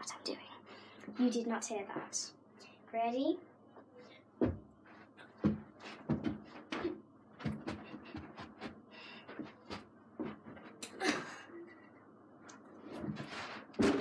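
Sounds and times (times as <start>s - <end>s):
feet thudding on floor: 4.4s - 10.8s.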